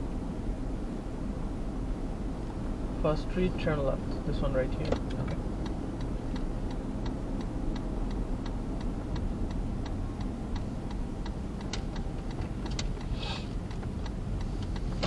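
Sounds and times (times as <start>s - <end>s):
car rumbling on road: 0.0s - 15.0s
car turn signal ticking: 4.6s - 15.0s
short hiss: 13.1s - 13.6s.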